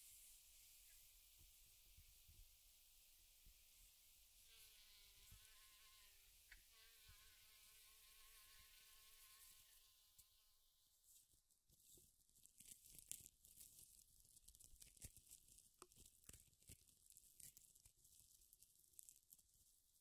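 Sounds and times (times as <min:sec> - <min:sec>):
mosquito whine: 0:04.6 - 0:10.7
crackling and rustling clicks: 0:11.7 - 0:20.0.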